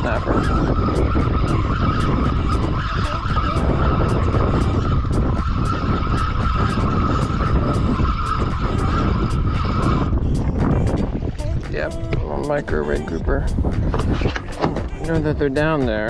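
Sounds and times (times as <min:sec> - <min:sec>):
fishing reel whine: 0:00.0 - 0:10.2
wind rumble on microphone: 0:00.0 - 0:16.0.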